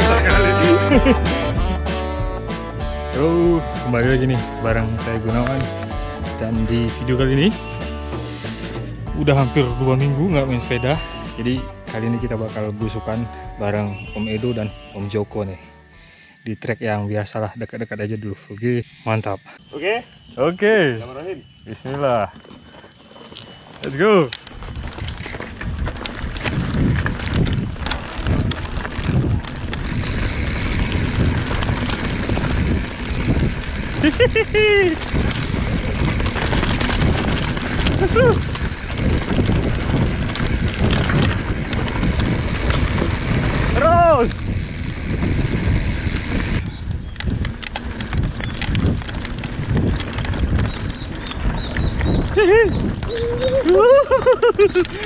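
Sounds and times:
bike rattling over stones: 0.0s - 1.7s, 2.7s - 15.6s, 20.1s - 55.0s
bike tyre rumble on gravel: 0.0s - 15.9s, 21.2s - 55.0s
wind buffeting microphone: 24.0s - 55.0s.

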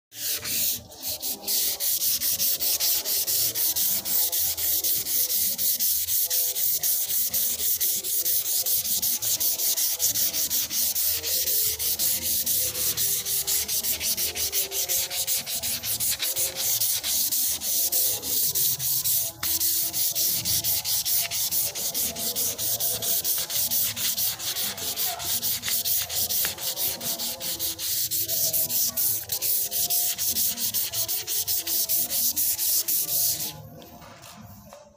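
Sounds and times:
sandpaper rubbing on wood: 0.1s - 33.6s.

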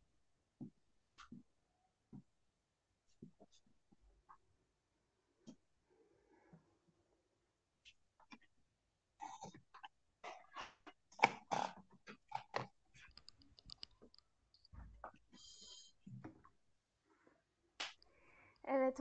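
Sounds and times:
keyboard typing: 12.2s - 14.8s.

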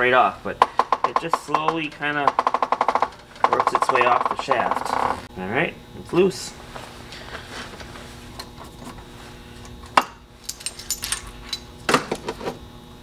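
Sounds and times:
metal parts clinking and tapping: 10.4s - 11.6s.

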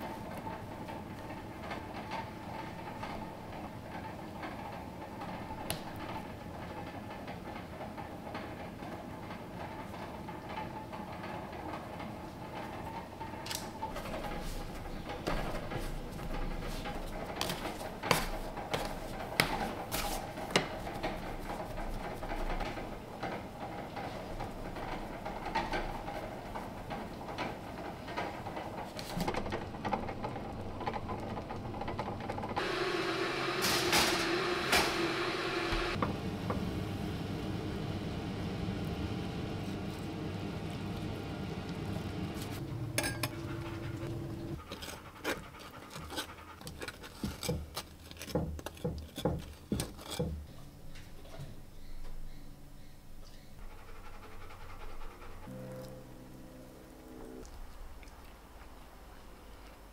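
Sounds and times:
steady hum: 52.5s - 59.9s.

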